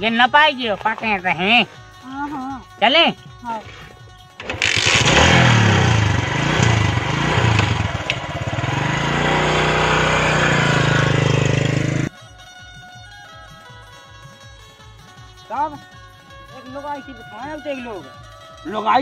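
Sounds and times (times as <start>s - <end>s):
motorcycle engine revving: 4.4s - 12.1s.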